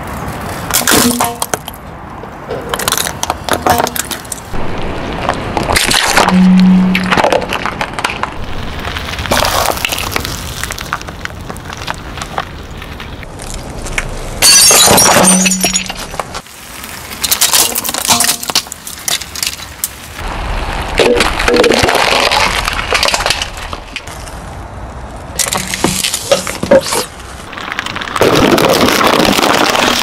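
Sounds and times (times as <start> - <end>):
tyre crushing objects: 25.4 - 30.0.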